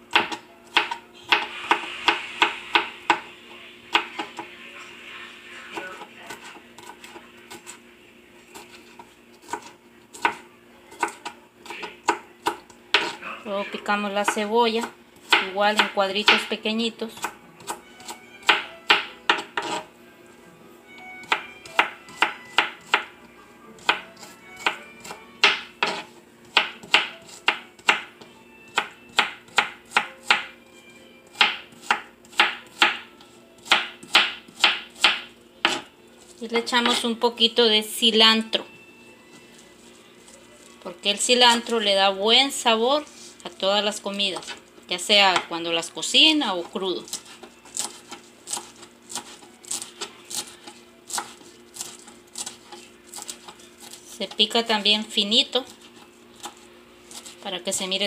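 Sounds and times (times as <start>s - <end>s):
knife chopping on cutting board: 0.1s - 3.3s, 3.9s - 4.5s, 8.5s - 10.4s, 11.0s - 13.2s, 14.3s - 16.5s, 17.2s - 19.9s, 21.2s - 23.1s, 23.8s - 30.5s, 31.4s - 35.9s, 47.0s - 54.3s.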